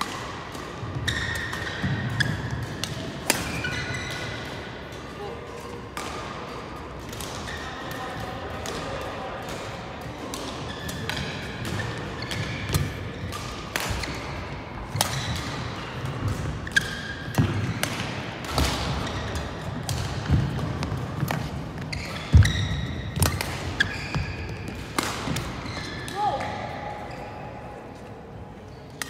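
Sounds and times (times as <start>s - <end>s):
rackets hitting shuttlecock: 0.0s - 5.1s, 5.8s - 27.0s
shoes squeaking on mat: 21.3s - 24.8s.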